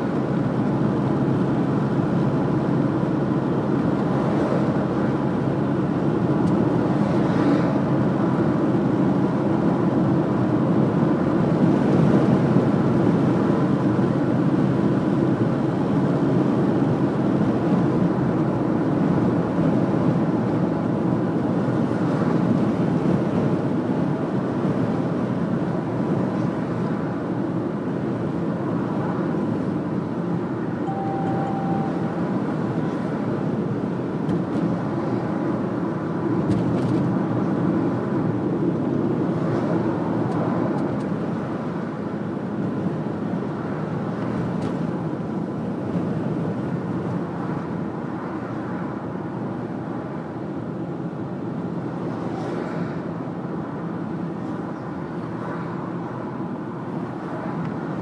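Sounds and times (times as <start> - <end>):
car engine and road noise: 0.0 - 58.0
short faint beep: 30.8 - 32.4.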